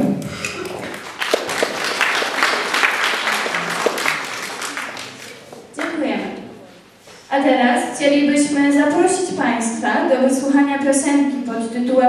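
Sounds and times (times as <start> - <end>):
audience applauding: 0.4 - 5.8.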